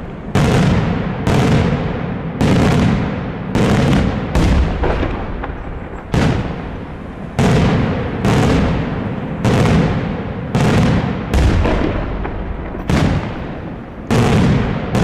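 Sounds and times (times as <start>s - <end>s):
echoing rumble: 0.0s - 15.0s
firework shells bursting: 3.8s - 15.0s.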